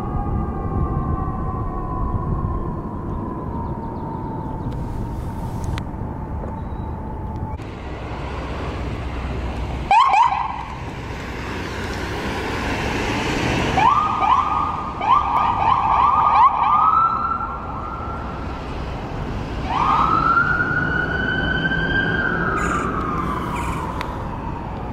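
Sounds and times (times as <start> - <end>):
electronic emergency siren: 0.0 - 7.7, 9.9 - 10.8, 13.7 - 18.5, 19.6 - 24.9
traffic and engine noise: 0.0 - 24.9.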